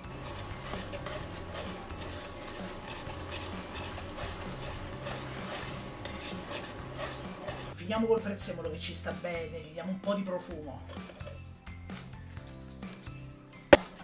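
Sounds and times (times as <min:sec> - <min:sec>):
pasta and sauce squelching: 0:00.0 - 0:07.8
tongs scraping a pan: 0:00.0 - 0:07.8.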